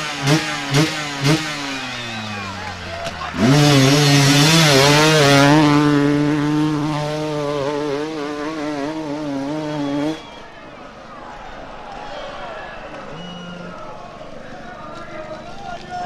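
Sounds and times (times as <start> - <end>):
dirt bike engine revving: 0.0 - 10.6.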